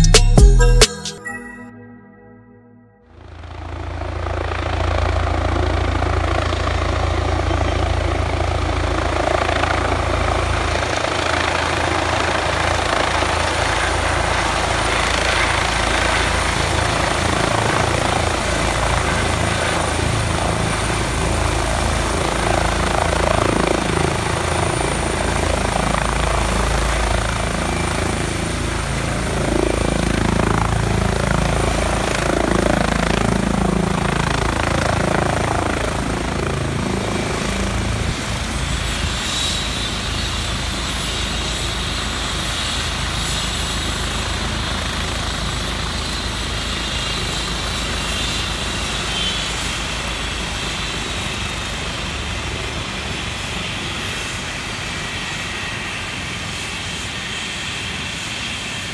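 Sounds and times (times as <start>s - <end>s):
helicopter rotor and turbine: 3.0s - 58.9s.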